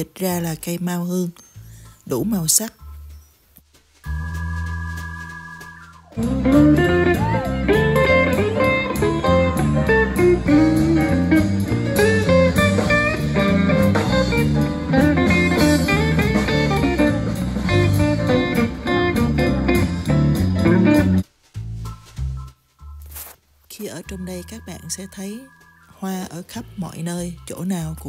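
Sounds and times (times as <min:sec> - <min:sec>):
lead guitar: 0:06.2 - 0:21.2
live band through speakers: 0:06.2 - 0:21.2.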